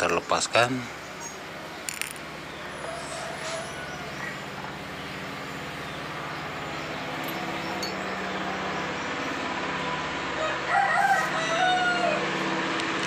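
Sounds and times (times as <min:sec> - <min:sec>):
engine humming: 0:00.0 - 0:13.0
metallic clink: 0:07.2 - 0:08.0.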